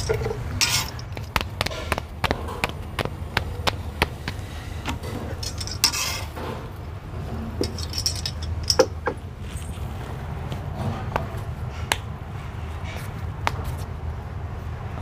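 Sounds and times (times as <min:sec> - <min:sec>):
tongs scraping pan: 0:05.3 - 0:06.4
metal tongs clinking on iron pan: 0:05.4 - 0:06.3.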